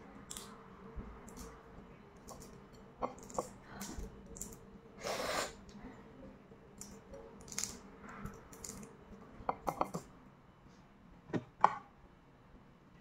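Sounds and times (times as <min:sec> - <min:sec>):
small sharp eating clicks: 0:00.2 - 0:00.6, 0:01.2 - 0:01.6, 0:06.8 - 0:09.0.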